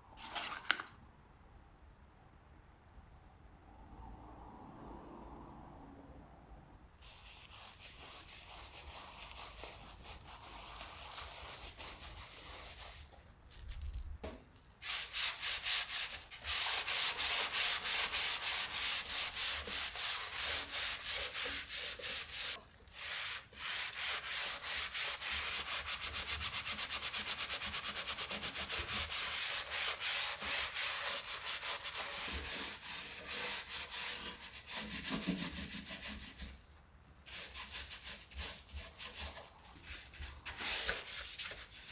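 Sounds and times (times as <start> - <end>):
sponge scrubbing metal: 14.8 - 36.5.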